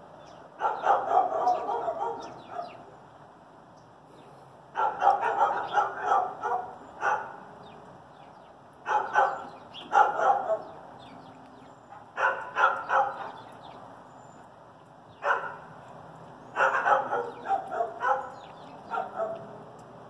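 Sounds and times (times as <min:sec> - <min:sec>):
dog barking: 0:00.6 - 0:02.8, 0:04.7 - 0:07.4, 0:08.8 - 0:10.8, 0:11.9 - 0:13.5, 0:15.2 - 0:15.7, 0:16.6 - 0:19.6.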